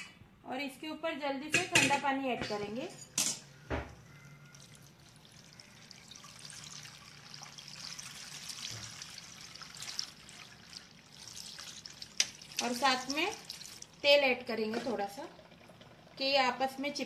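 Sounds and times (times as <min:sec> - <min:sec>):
water pouring into colander: 0:04.4 - 0:16.4.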